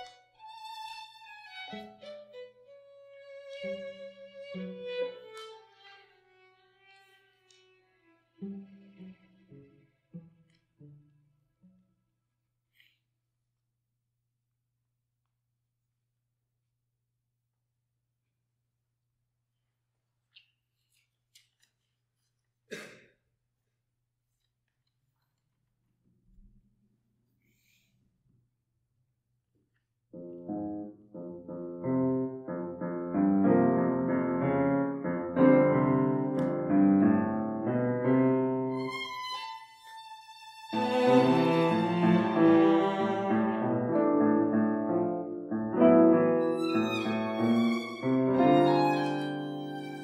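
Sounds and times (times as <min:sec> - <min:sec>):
grand piano playing: 0:30.2 - 0:39.0, 0:40.8 - 0:50.0.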